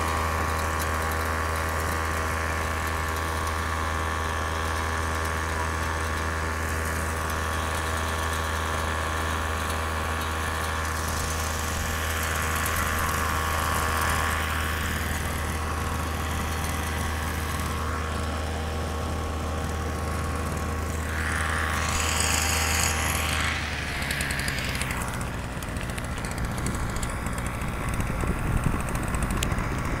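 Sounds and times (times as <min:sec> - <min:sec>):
small two-stroke engine running: 0:00.0 - 0:30.0.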